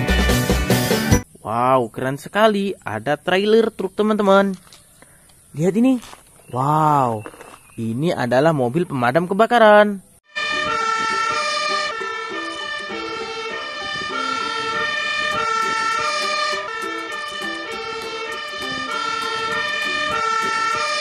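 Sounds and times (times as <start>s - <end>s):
fire engine siren: 10.3s - 21.0s.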